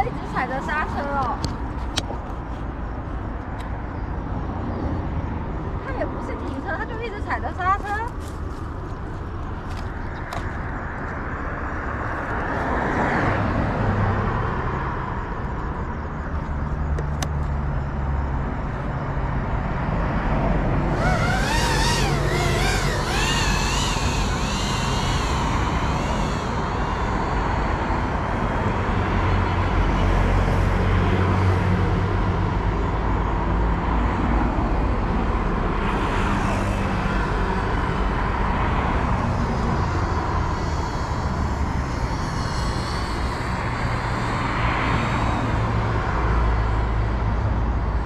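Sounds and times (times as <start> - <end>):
drone propellers buzzing: 20.6 - 33.2, 35.6 - 47.2.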